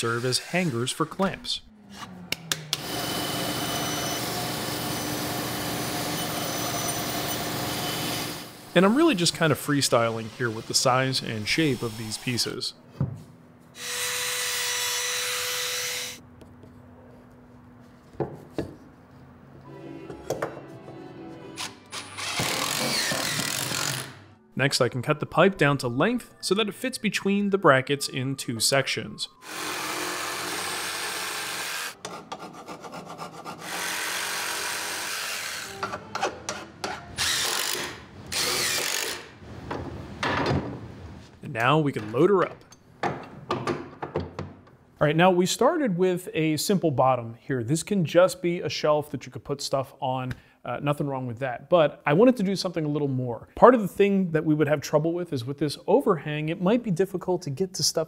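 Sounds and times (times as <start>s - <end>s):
saw cutting a pipe: 0.0s - 1.0s, 13.8s - 16.2s, 21.6s - 24.2s, 29.4s - 39.3s
power tool motor hum: 22.0s - 24.2s, 37.2s - 39.3s.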